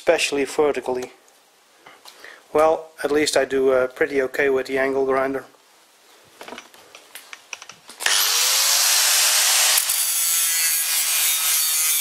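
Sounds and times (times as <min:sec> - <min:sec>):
angle grinder grinding steel: 0:08.0 - 0:12.0.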